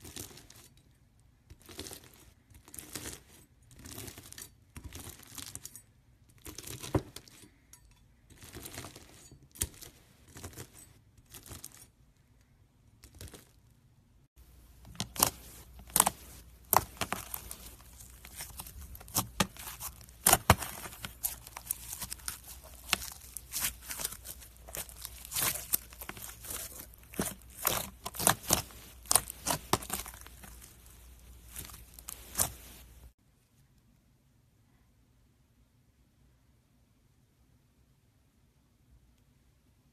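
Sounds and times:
crunchy slime being sliced: 14.9 - 32.7.

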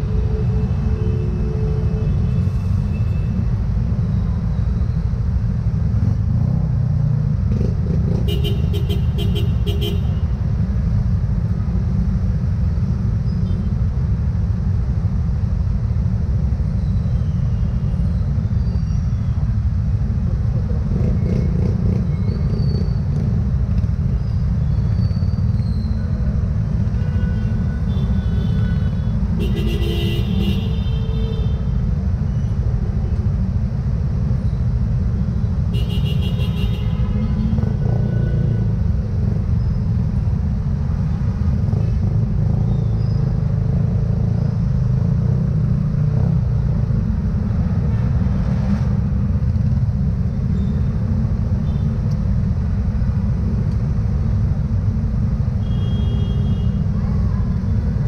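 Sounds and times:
motorcycle and traffic rumble: 0.0 - 58.0
short vehicle horn toots: 55.6 - 56.7.

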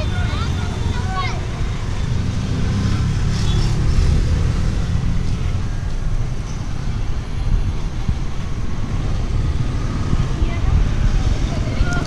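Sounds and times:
cars passing on road: 0.0 - 12.0.

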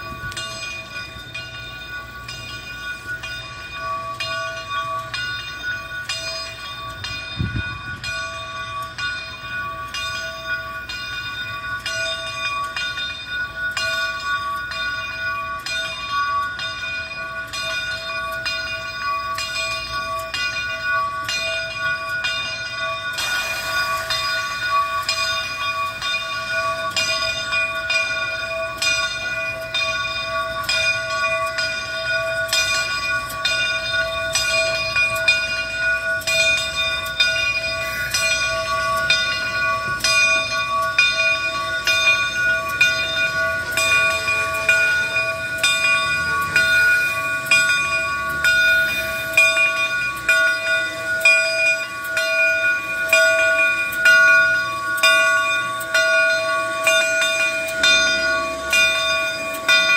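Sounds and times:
steam locomotive bell ringing: 0.0 - 59.9
steam locomotive running: 0.0 - 59.9
hiss of steam: 23.2 - 25.2, 37.7 - 39.1, 46.4 - 50.2.

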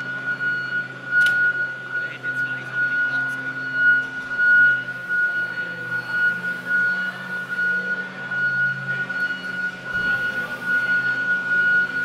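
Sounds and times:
dump truck high whine: 0.0 - 12.0.

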